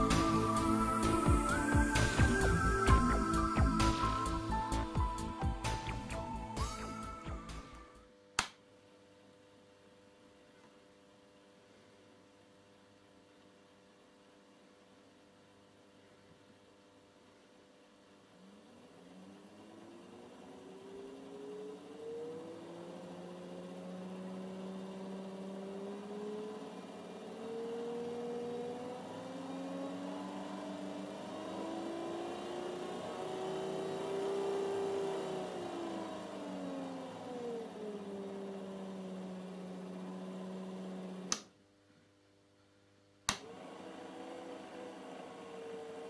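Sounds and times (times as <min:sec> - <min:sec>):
electric motor whine: 0:00.0 - 0:08.0, 0:18.4 - 0:41.5, 0:43.3 - 0:46.0
switch click: 0:41.3 - 0:41.5, 0:43.3 - 0:43.5.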